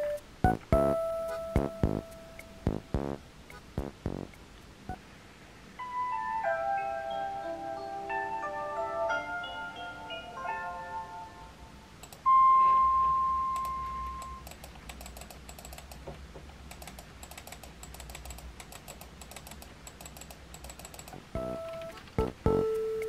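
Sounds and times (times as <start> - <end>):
clear ringing tone: 12.3 - 14.4
laptop keyboard typing: 13.6 - 23.0.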